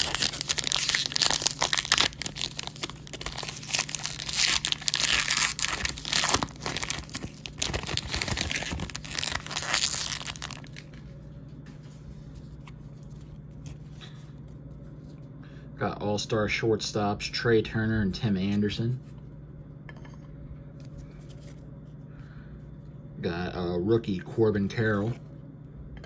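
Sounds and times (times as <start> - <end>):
wrapper tearing and crinkling: 0.0 - 10.9
low steady hum: 0.0 - 26.0.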